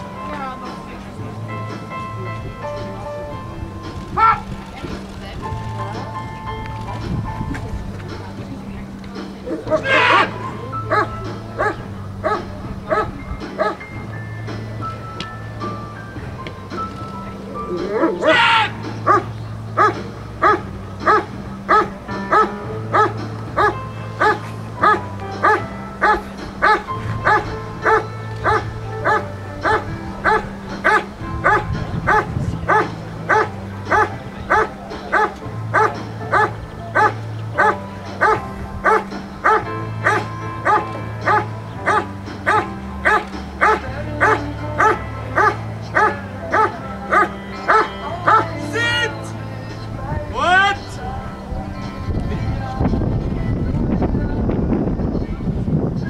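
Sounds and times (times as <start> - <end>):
background music: 0.0 - 56.0
dog barking rhythmically: 4.2 - 4.4, 9.5 - 13.9, 18.0 - 49.2.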